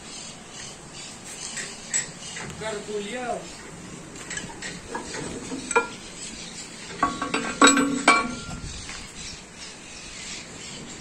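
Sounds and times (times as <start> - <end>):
metallic clanks with ringing: 6.9 - 8.8.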